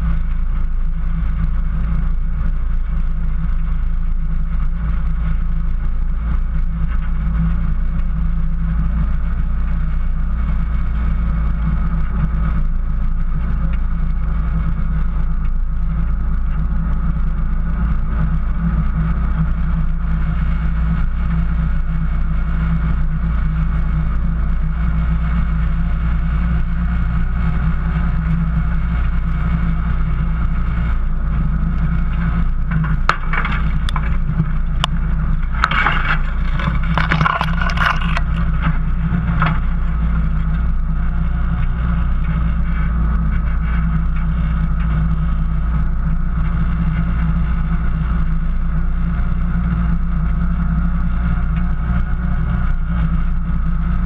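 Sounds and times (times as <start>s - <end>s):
engine droning: 0.0s - 54.0s
tyre and driveline noise: 29.0s - 41.8s
branches scraping car hood: 32.8s - 38.8s.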